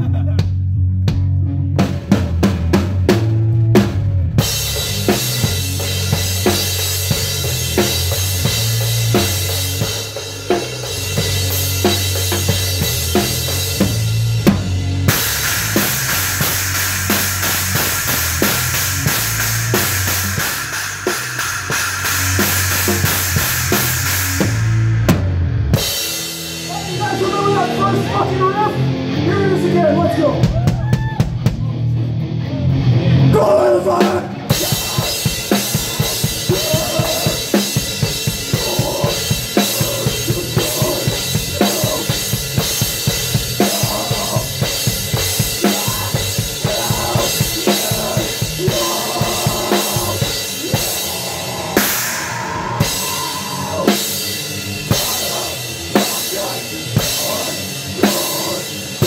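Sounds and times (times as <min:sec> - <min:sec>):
drums and cymbals pounding: 0:00.0 - 0:32.3, 0:33.2 - 0:59.0
held bass notes: 0:00.0 - 0:59.0
live band playing: 0:00.0 - 0:59.0
electric guitar lead line: 0:01.4 - 0:30.5, 0:31.5 - 0:59.0
drum hits: 0:34.5 - 0:52.1.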